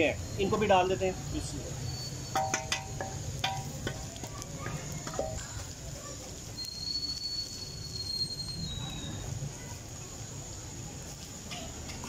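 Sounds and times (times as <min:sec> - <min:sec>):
spices frying in hot oil: 0:00.0 - 0:12.0
thin high whistle: 0:01.5 - 0:02.9, 0:06.5 - 0:09.4
spoon clicking against wok: 0:02.3 - 0:04.1.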